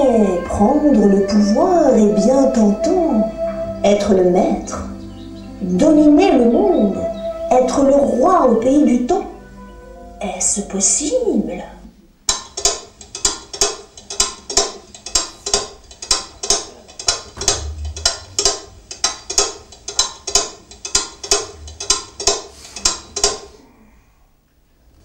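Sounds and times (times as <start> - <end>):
clock ticking: 12.3 - 23.6.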